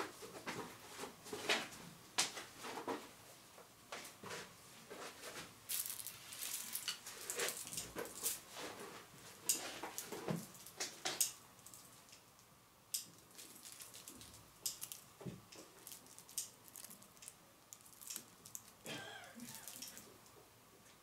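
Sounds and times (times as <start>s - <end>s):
fabric rustling: 5.0s - 10.7s.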